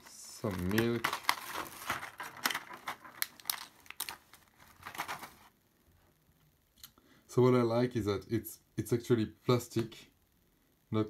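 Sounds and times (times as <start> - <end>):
plastic blister tray crinkling: 0.0 - 5.5.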